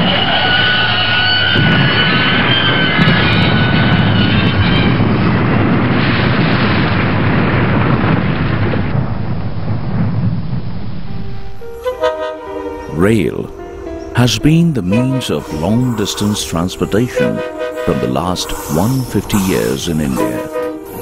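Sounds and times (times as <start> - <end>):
high squeal of train wheels: 0.0 - 5.3, 14.9 - 21.0
train rumbling past on rails: 0.0 - 21.0.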